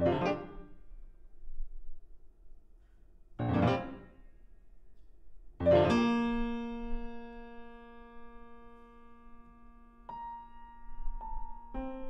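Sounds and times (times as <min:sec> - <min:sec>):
loud piano chords: 0:00.0 - 0:01.0, 0:03.4 - 0:04.4, 0:05.6 - 0:12.0.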